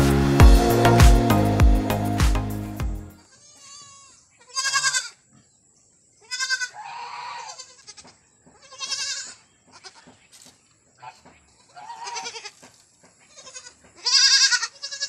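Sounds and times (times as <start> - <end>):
goat kids bleating: 3.3 - 5.2, 6.2 - 10.1, 11.0 - 15.0.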